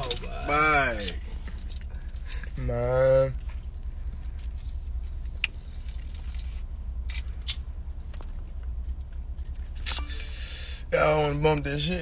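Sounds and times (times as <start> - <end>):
car cabin hum: 0.0 - 6.5.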